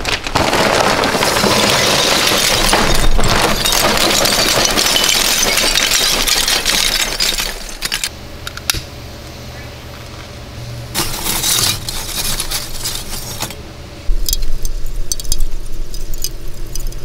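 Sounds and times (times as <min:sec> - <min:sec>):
charcoal clattering into metal grill: 0:11.0 - 0:13.6.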